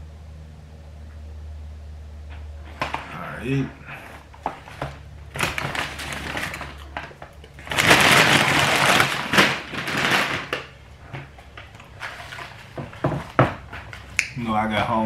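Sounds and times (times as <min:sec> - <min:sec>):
paper bag rustling: 0:02.6 - 0:14.2.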